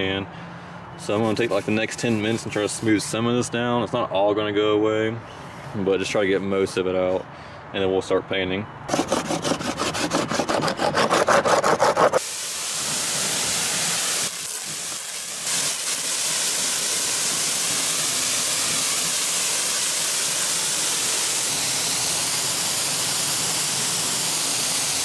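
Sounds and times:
sandpaper rubbing plastic: 0:01.1 - 0:02.8, 0:08.9 - 0:12.3
pressure washer jet hissing: 0:11.9 - 0:25.0.

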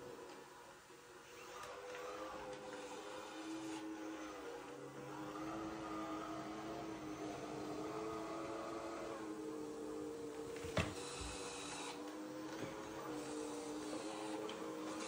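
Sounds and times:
robot vacuum motor hum: 0:00.0 - 0:15.0.

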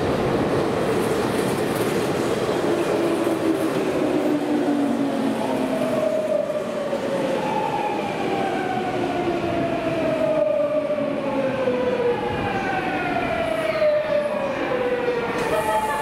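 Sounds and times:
train wheels rumbling on rails: 0:00.0 - 0:08.8.

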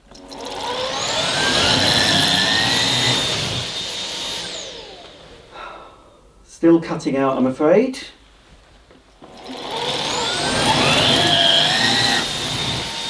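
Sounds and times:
cordless stick vacuum whine: 0:00.0 - 0:05.8, 0:09.2 - 0:13.0.

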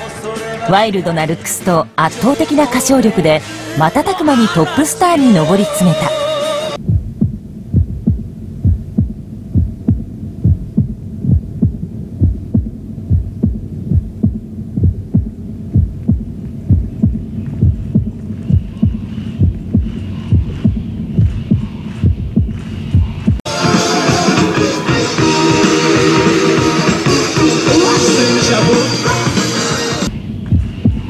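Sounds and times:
continuous low hum: 0:04.6 - 0:23.4, 0:30.0 - 0:31.0
heartbeat thumping: 0:06.8 - 0:23.4, 0:30.0 - 0:31.0.

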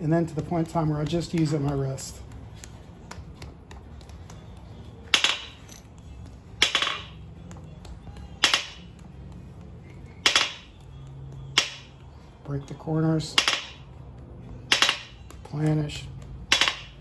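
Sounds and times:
hammer striking clay on anvil: 0:06.6 - 0:07.2, 0:08.4 - 0:08.9, 0:10.2 - 0:10.7, 0:11.5 - 0:12.0, 0:13.2 - 0:13.9, 0:14.6 - 0:15.8, 0:16.4 - 0:17.0.

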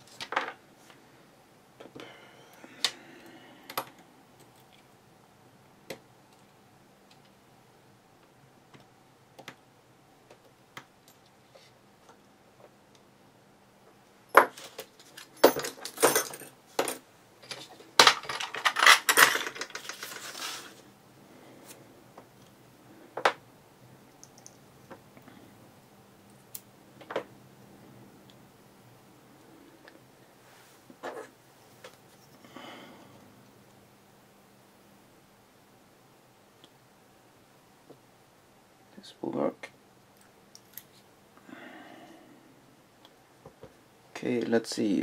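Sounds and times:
metal tools clattering: 0:14.4 - 0:20.5.

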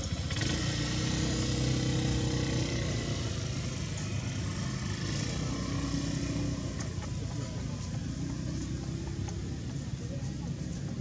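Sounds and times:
motor engine humming: 0:00.0 - 0:11.0.

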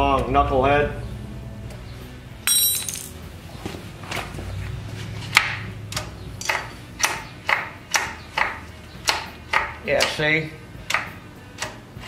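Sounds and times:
metallic ping: 0:02.5 - 0:03.2.

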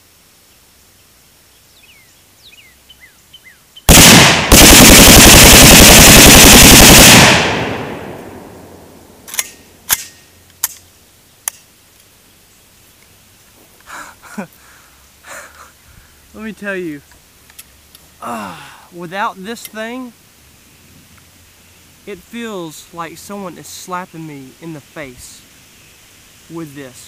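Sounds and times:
automatic gunfire bursts: 0:03.9 - 0:08.2
gunfire echo: 0:03.9 - 0:10.2
sharp clicks: 0:09.2 - 0:12.1.

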